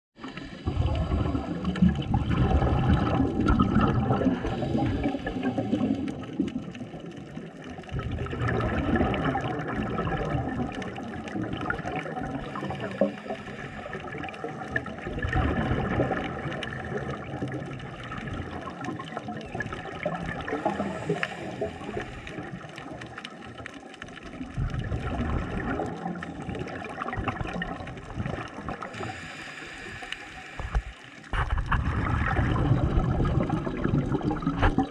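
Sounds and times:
underwater gurgling and bubbling: 0.2s - 34.9s.

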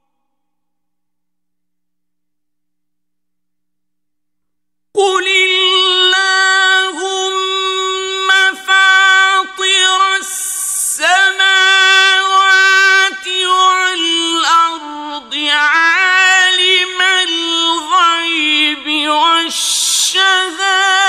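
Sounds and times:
man chanting verses: 5.0s - 21.0s.

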